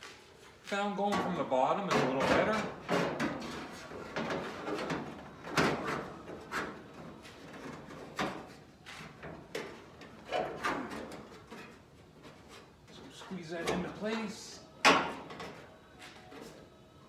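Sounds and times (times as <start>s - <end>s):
sheet metal scraping and knocking: 1.1s - 12.7s.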